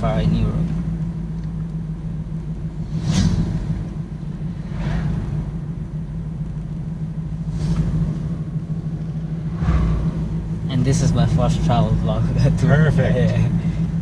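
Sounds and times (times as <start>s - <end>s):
road rumble: 0.0s - 14.0s
van engine drone: 0.0s - 14.0s
brief whooshes: 2.9s - 3.7s, 4.6s - 5.4s.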